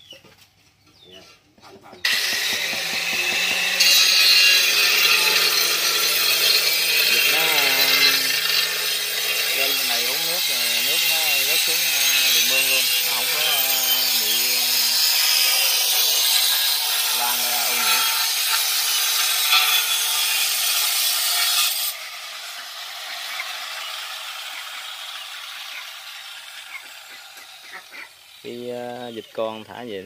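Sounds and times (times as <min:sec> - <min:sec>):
cutting tool rasping hiss: 0:02.0 - 0:22.0.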